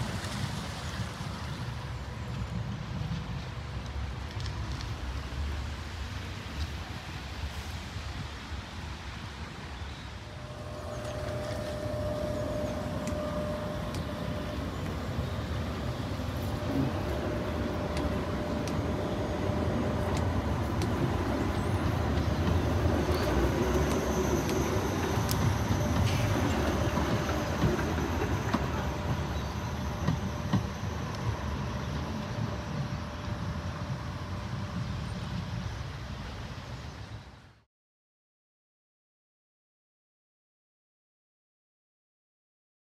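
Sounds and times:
tram rumbling on rails: 0:00.0 - 0:37.6
faint electric whine: 0:10.2 - 0:20.1.

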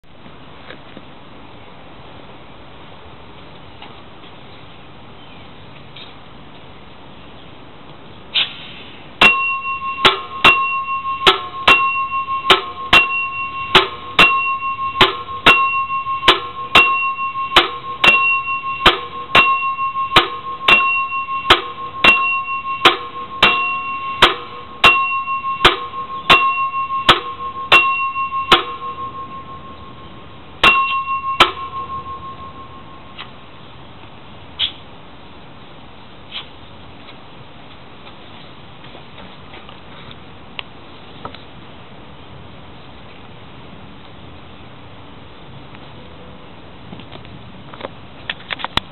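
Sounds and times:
air meter bell dinging: 0:09.2 - 0:33.6.

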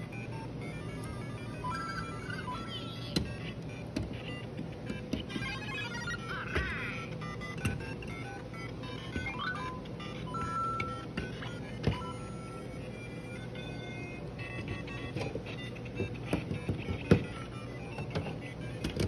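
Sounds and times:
electronic game sound effects: 0:00.7 - 0:08.2, 0:08.8 - 0:12.7.

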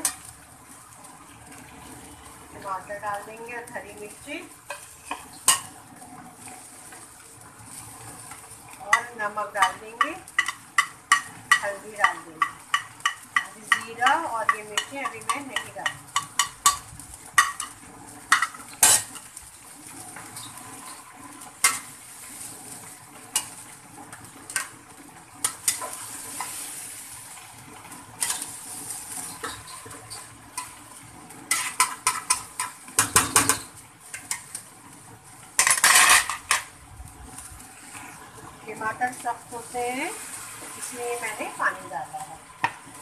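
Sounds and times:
light sizzle: 0:00.0 - 0:43.0
metal spatula scraping pot: 0:17.4 - 0:19.3, 0:28.2 - 0:30.8, 0:31.5 - 0:34.6, 0:35.6 - 0:36.6.

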